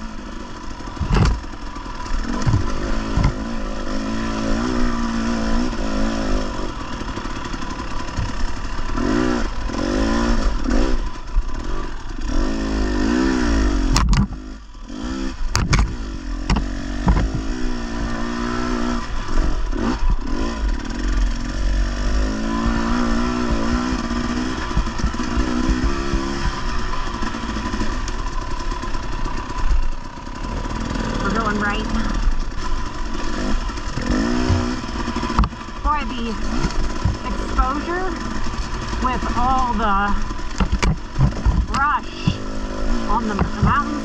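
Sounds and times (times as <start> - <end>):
dirt bike engine revving: 0.0 - 44.0
sharp knocks: 1.0 - 1.4, 2.4 - 3.4, 15.5 - 17.5.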